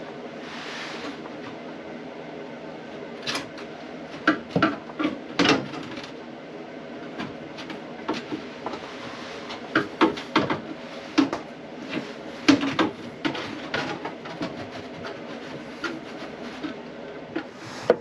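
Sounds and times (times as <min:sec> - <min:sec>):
faint steady hum: 0:00.0 - 0:18.0
knocks and clatter of tools: 0:09.7 - 0:16.8.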